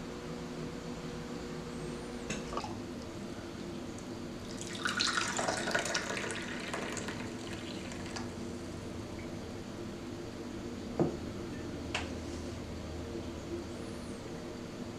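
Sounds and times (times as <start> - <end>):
low steady hum: 0.0 - 14.9
coffee pouring into a cup: 4.4 - 8.3.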